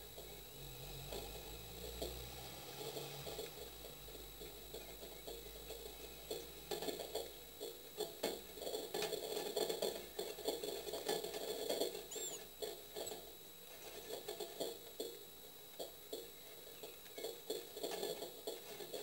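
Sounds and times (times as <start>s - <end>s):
faint high whine: 0.0s - 19.0s
nestlings rustling and scratching: 1.1s - 19.0s
bird chirp: 12.1s - 12.5s.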